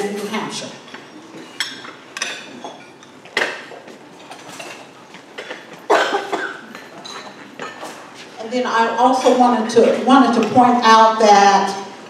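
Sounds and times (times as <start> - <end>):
crockery and cutlery clinking: 0.0 - 8.1.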